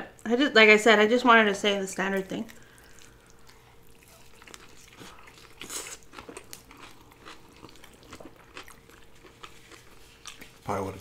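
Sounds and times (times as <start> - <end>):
person chewing burger: 2.5 - 10.7.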